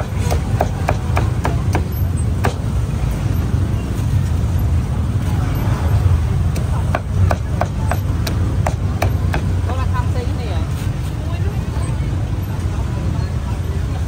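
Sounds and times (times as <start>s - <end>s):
cleaver chopping meat: 0.0s - 2.7s, 6.5s - 9.7s
low rumble of street traffic: 0.0s - 14.0s.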